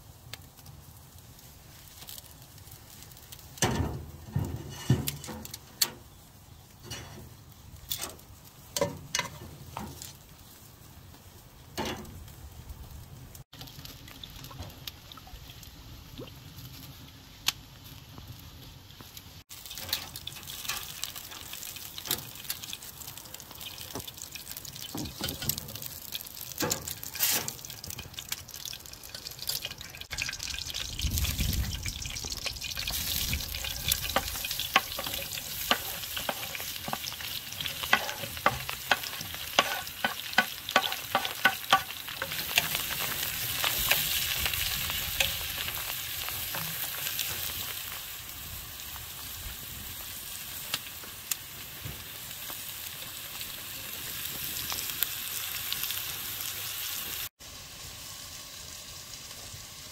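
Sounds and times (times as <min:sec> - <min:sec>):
oil crackling: 0:00.0 - 0:57.3
metal tongs knocking on grill grate: 0:33.8 - 0:42.8.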